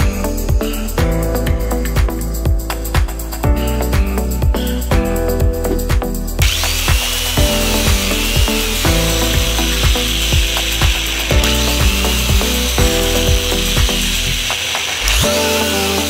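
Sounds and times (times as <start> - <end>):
background music with beat: 0.0 - 16.0
electric drill boring holes: 6.4 - 16.0.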